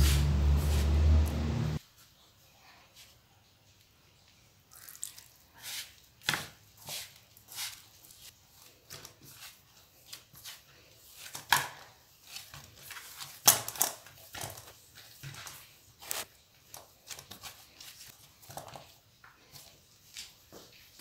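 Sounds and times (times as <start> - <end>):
hands kneading dough in metal bowl: 4.8 - 21.0.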